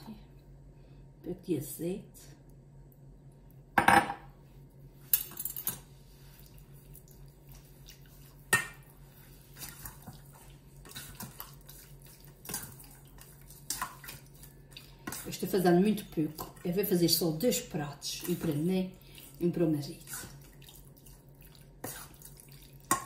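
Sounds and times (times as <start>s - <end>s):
metal spoon stirring in steel bowl: 9.5s - 23.0s.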